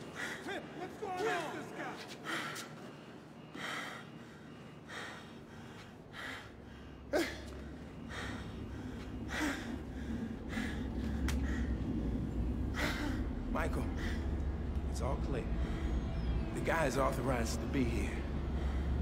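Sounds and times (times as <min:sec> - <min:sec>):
man panting: 0:02.2 - 0:14.4
low rumble: 0:06.8 - 0:19.0.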